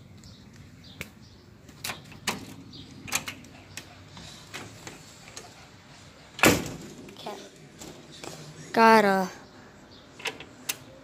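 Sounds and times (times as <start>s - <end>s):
screen door shutting: 1.8s - 5.5s, 6.3s - 8.2s.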